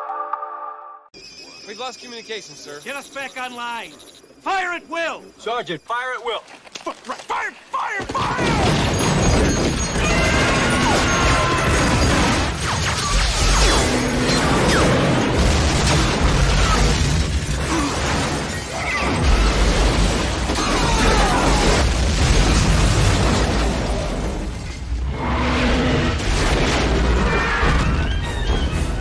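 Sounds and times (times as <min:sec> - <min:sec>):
shattering debris: 0:08.0 - 0:25.0
explosions and booms: 0:08.0 - 0:29.0.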